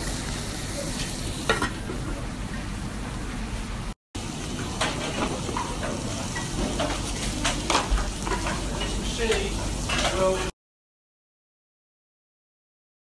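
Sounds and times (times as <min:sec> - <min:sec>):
vegetables sizzling in a pot: 0:00.0 - 0:02.1, 0:04.2 - 0:10.5.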